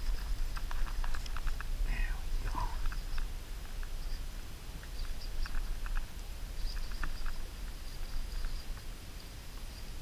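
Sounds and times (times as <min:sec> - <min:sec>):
small irregular clicks and taps: 0:00.0 - 0:01.7, 0:02.8 - 0:04.0, 0:04.8 - 0:09.3
wind rumbling on microphone: 0:00.0 - 0:10.0.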